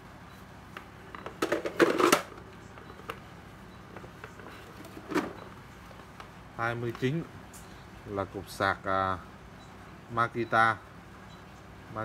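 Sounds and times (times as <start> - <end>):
plastic chargers clattering: 1.1 - 3.2, 3.9 - 5.5.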